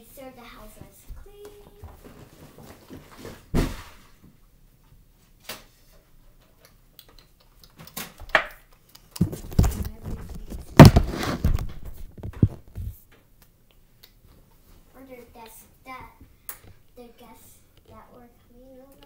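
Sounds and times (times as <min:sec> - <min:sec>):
rustling: 0:09.1 - 0:13.0.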